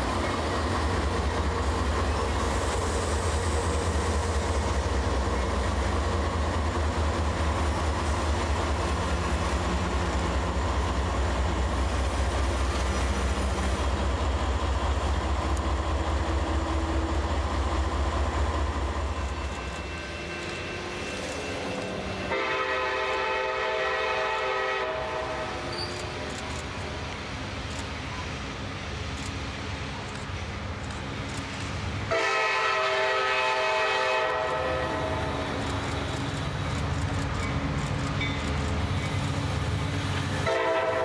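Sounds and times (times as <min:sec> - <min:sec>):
train rumble with wheel clatter: 0:00.0 - 0:41.0
locomotive horn blast: 0:19.6 - 0:25.7, 0:32.1 - 0:35.4, 0:40.4 - 0:41.0.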